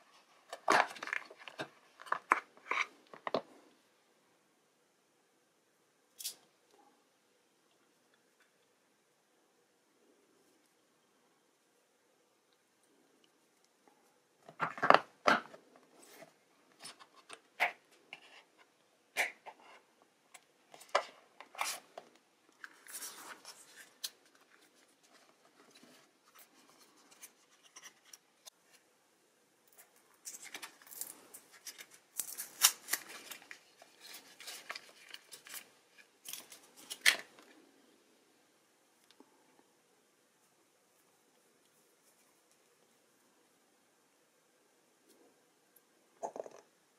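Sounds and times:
paper wrapping crinkling: 0:30.2 - 0:37.6.

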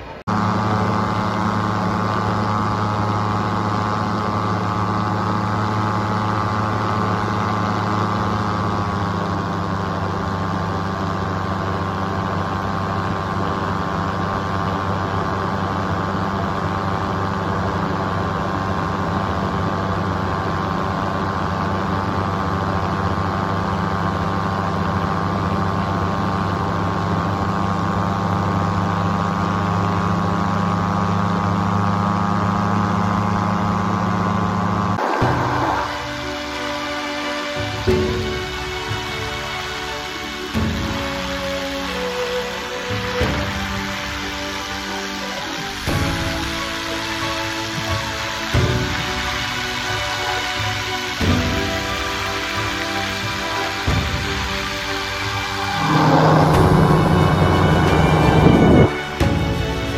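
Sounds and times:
paramotor engine droning: 0:00.0 - 0:59.9.

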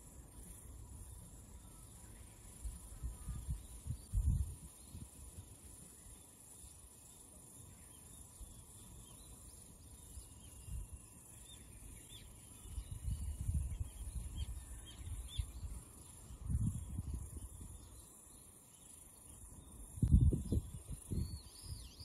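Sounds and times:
insect drone: 0:00.0 - 0:22.0
wind buffeting microphone: 0:02.6 - 0:05.4, 0:12.6 - 0:17.9, 0:19.8 - 0:22.0
bird chirps: 0:05.9 - 0:22.0.

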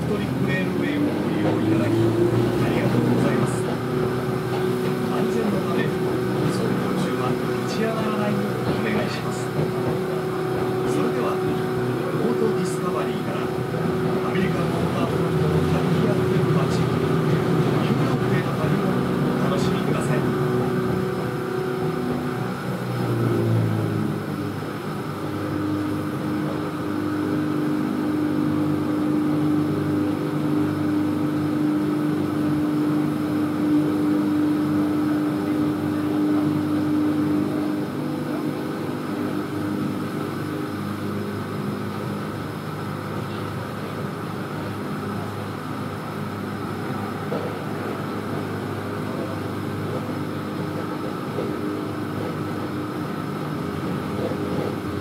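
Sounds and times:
train wheels rumbling on rails: 0:00.0 - 0:28.0, 0:41.4 - 0:55.0
train motor whine: 0:00.0 - 0:55.0.

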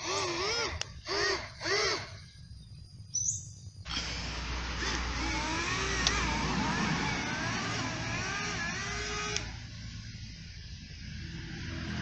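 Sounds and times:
steady noise: 0:03.7 - 0:12.0.

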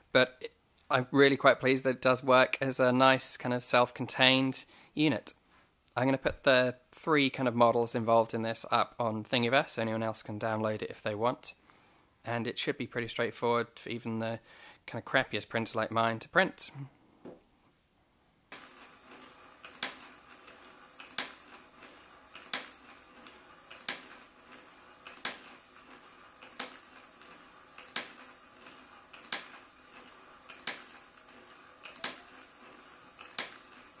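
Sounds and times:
ball bearings ticking and rattling: 0:18.5 - 0:34.0
marble machine clicking: 0:18.5 - 0:34.0.

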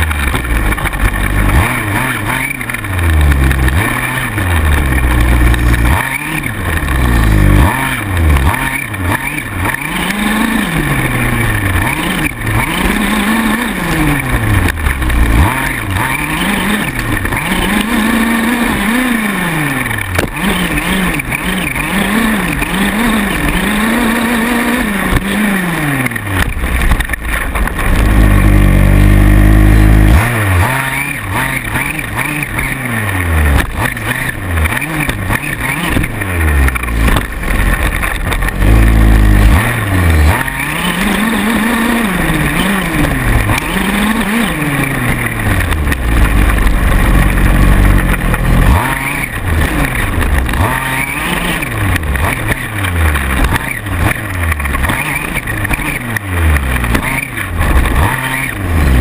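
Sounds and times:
small two-stroke engine revving: 0:00.0 - 0:59.0.

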